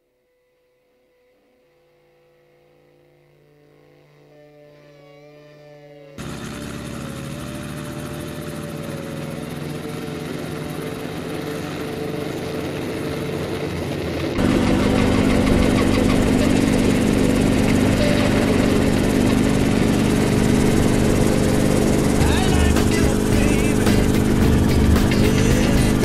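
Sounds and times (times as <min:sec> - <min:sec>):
helicopter cabin noise in flight: 0:06.2 - 0:26.0
helicopter engine and rotor hum: 0:06.2 - 0:26.0.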